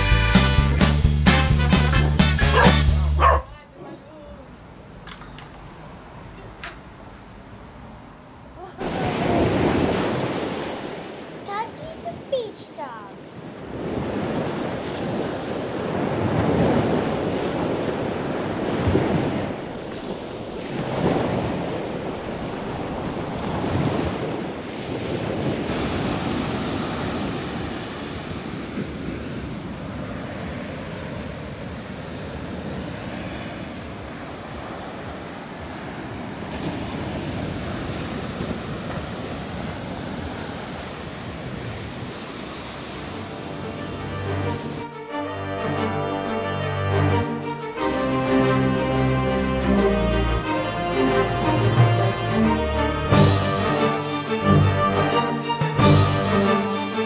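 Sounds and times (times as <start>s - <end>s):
ocean surf breaking: 8.4s - 44.9s, 45.8s - 57.0s
wind rumbling on microphone: 13.3s - 42.8s.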